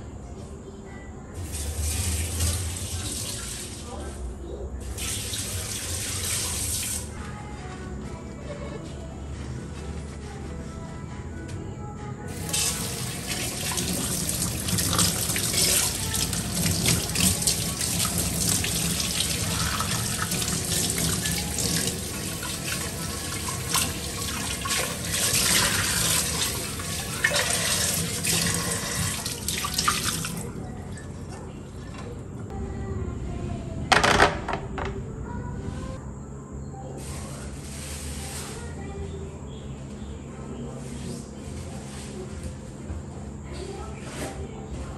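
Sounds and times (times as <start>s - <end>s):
faucet water running over pan: 4.9s - 7.1s, 12.3s - 30.9s.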